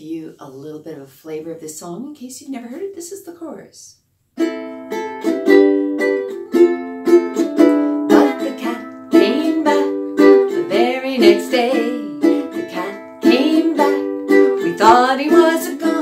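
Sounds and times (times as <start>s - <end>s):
ukulele strummed chords: 4.4s - 16.0s
woman singing: 7.9s - 16.0s.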